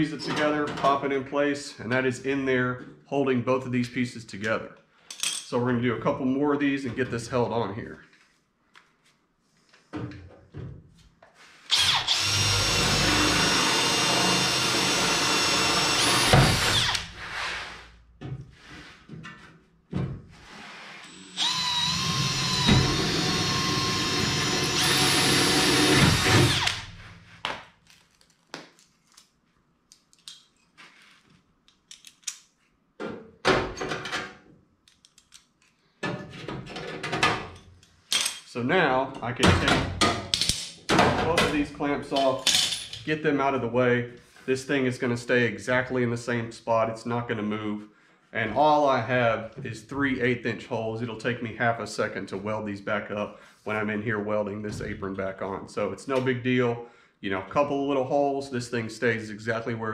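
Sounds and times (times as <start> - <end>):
cordless drill drilling sheet metal: 11.7 - 17.3, 21.0 - 27.1
metallic clicks of fasteners: 29.9 - 30.8, 31.6 - 32.5, 34.8 - 35.9.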